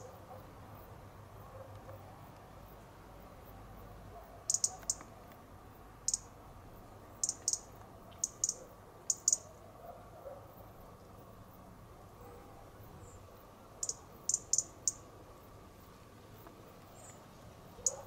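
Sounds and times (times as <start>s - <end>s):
robin tic calls: 0.0s - 0.5s, 3.8s - 5.2s, 6.0s - 6.4s, 7.1s - 9.6s, 12.3s - 18.0s.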